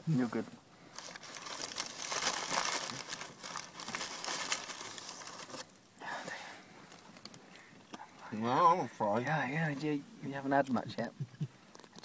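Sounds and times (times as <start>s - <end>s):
crackling and crinkling: 0.1s - 9.2s, 10.6s - 12.0s.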